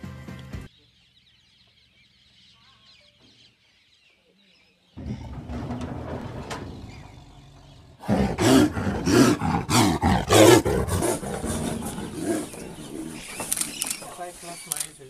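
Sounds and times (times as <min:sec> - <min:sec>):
big cat roaring: 0:05.0 - 0:13.6
big cat growling: 0:05.0 - 0:14.0.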